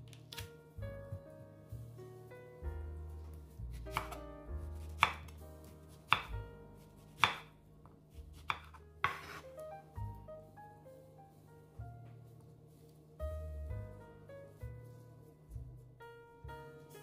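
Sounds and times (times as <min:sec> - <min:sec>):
soft background music: 0:00.0 - 0:17.0
knife slicing onto cutting board: 0:03.9 - 0:04.2, 0:08.4 - 0:09.5.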